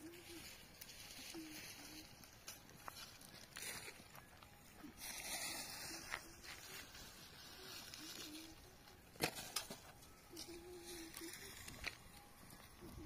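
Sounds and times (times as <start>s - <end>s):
faint outdoor ambience: 0.0s - 13.0s.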